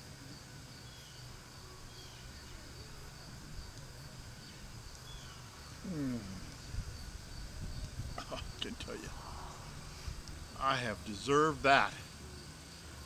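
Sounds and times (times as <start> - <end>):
high insect drone: 0.0 - 13.0
low rumble: 8.9 - 10.7.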